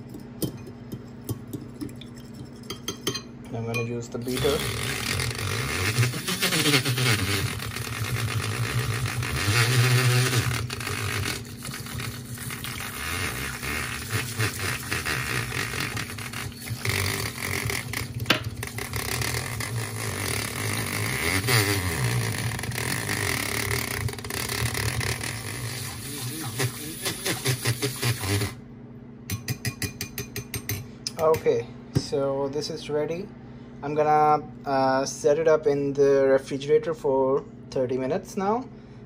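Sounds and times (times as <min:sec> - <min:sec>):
whisk churning liquid: 0:00.0 - 0:03.2, 0:04.2 - 0:28.6
milk frother motor humming: 0:04.2 - 0:28.6.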